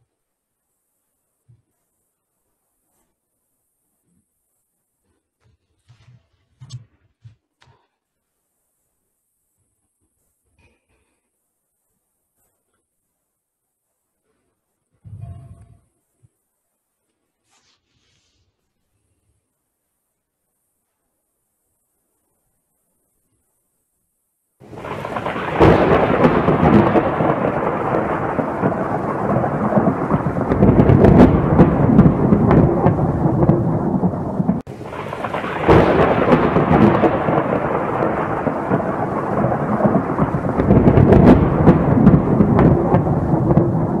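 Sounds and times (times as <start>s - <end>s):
rain-like hiss: 0.0s - 5.3s, 7.7s - 23.8s, 24.5s - 44.0s
rolling thunder: 24.6s - 44.0s
scattered crackles: 24.6s - 44.0s.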